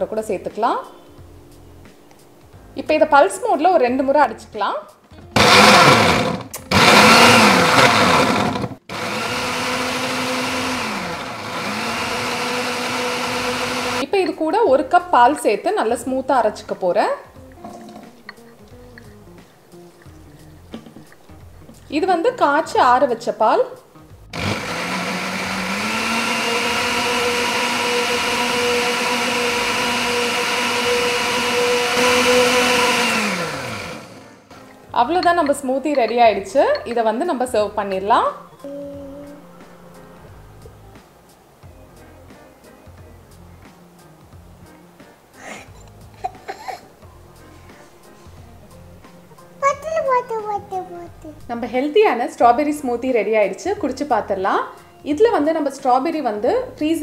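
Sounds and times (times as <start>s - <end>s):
blender motor whine: 5.4s - 14.0s, 24.3s - 34.4s
mixer grinder chopping fruit: 5.4s - 14.0s, 24.3s - 34.7s.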